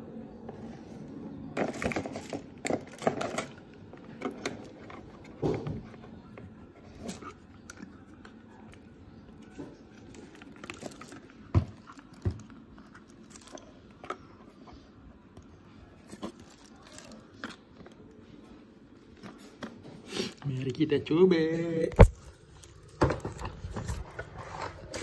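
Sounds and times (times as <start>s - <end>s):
plastic clicks and cardboard rustles: 1.6s - 18.2s.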